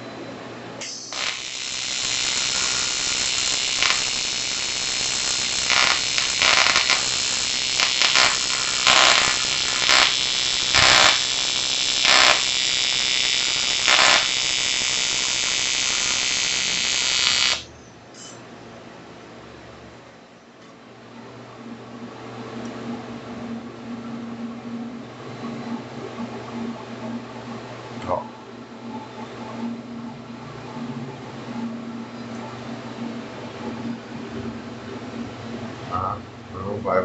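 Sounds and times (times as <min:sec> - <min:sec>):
welding arc buzzing hiss: 0:00.8 - 0:18.3.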